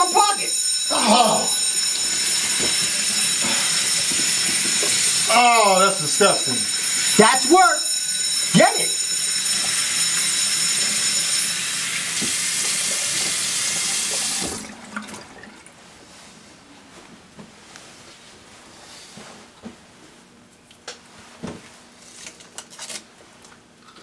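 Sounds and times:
phone ringtone: 0:00.0 - 0:14.4
tap water running into sink: 0:11.8 - 0:15.7.

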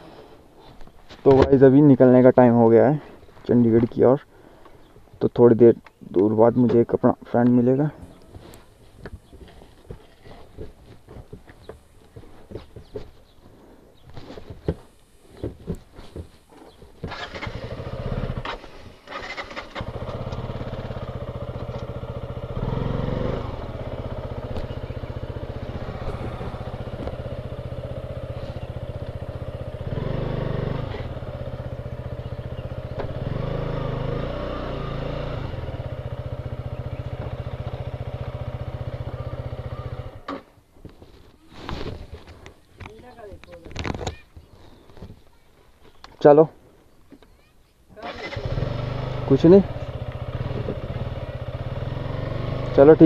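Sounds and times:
motorcycle engine idling: 0:16.5 - 0:40.3, 0:48.3 - 0:53.0.

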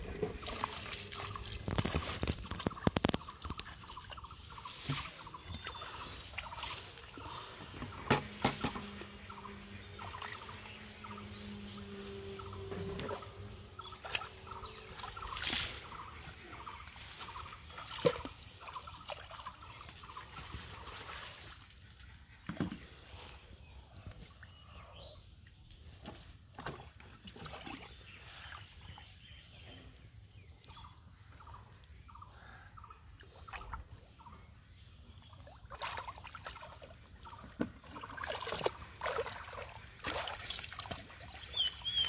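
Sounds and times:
water splashing and sloshing: 0:00.0 - 0:29.7, 0:33.0 - 0:42.0
low steady hum: 0:03.9 - 0:21.1.

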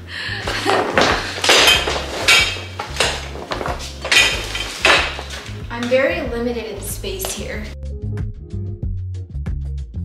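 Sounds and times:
fabric rustling over metal frame: 0:00.5 - 0:06.2.

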